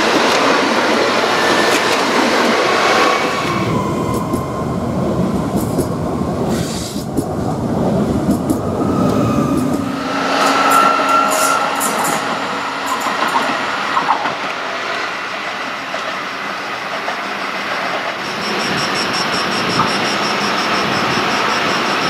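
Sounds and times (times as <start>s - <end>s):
train wheels rolling on rail: 0.0s - 22.0s
rapid high pulsing tone: 8.4s - 14.7s, 18.2s - 22.0s.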